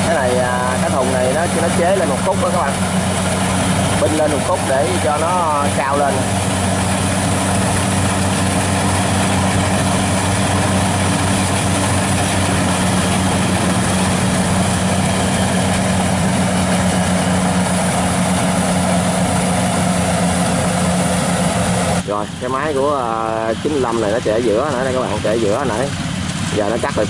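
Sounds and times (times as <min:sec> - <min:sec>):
combine harvester engine hum: 0:00.0 - 0:27.0
rush of threshing machinery: 0:00.0 - 0:27.0.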